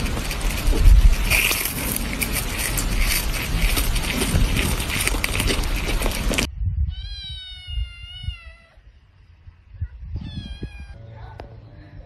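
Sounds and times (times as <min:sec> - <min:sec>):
cat meowing: 0:06.8 - 0:08.8, 0:09.8 - 0:11.0.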